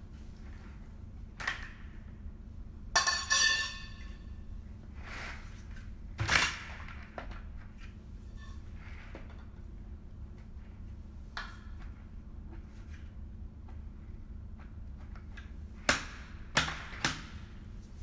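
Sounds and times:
metal tubes knocking and clinking: 0:03.0 - 0:04.0.

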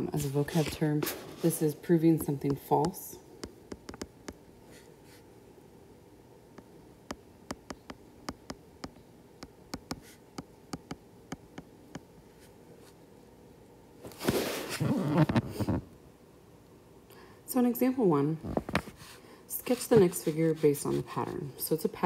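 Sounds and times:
stylus tapping on glass screen: 0:02.4 - 0:04.4, 0:07.1 - 0:12.1.

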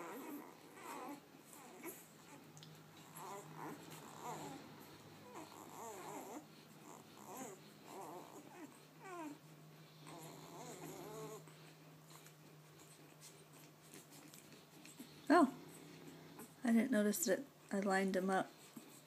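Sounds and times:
puppies squeaking: 0:10.0 - 0:11.5.

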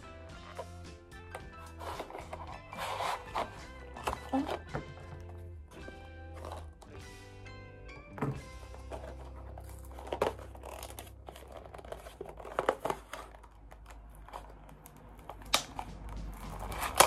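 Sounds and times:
plastic packaging crinkling: 0:08.7 - 0:15.6.

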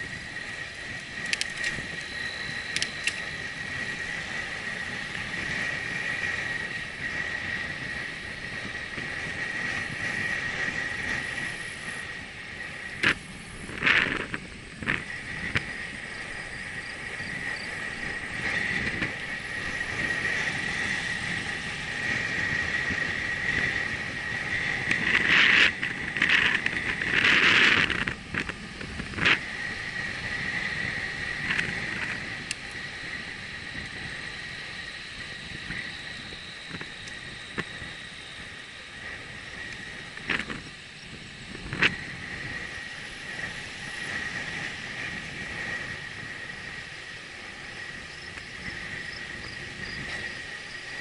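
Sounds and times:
bicycle tyre and wind noise: 0:00.0 - 0:51.0
thin high whine: 0:00.0 - 0:51.0.

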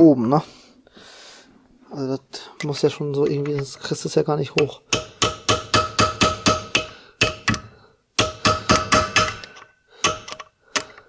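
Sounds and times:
hammer tapping on screwdriver: 0:04.6 - 0:11.0.

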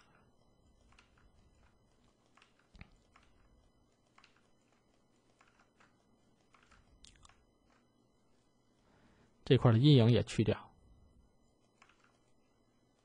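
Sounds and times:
computer mouse clicks: 0:00.0 - 0:07.9, 0:11.6 - 0:12.4
keyboard clicks: 0:00.0 - 0:07.9, 0:11.6 - 0:12.4.

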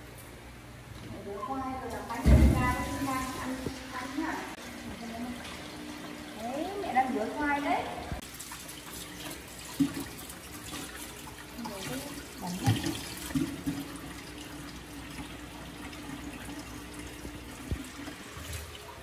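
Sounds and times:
tap running into sink: 0:12.4 - 0:13.9.

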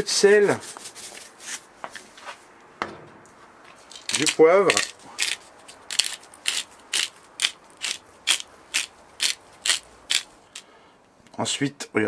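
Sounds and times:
pepper mill grinding: 0:03.9 - 0:10.7.

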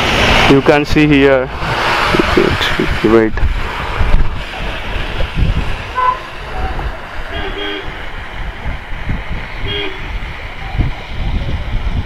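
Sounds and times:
wind buffeting microphone: 0:00.0 - 0:12.0
vehicle horn toots: 0:06.0 - 0:06.3, 0:07.3 - 0:08.0, 0:09.6 - 0:10.1.

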